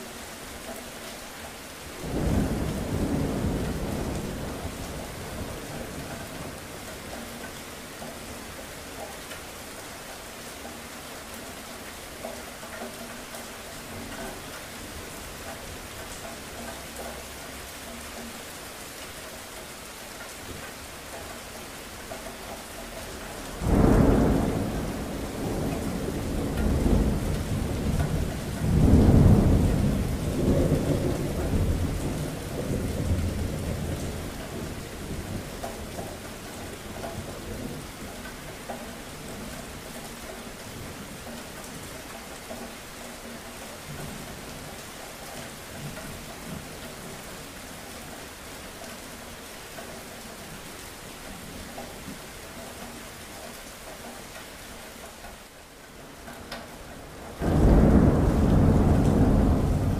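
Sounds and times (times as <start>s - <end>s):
rain falling: 0.0s - 59.9s
thunder rumbling: 2.0s - 6.7s, 23.5s - 38.0s, 57.0s - 59.9s.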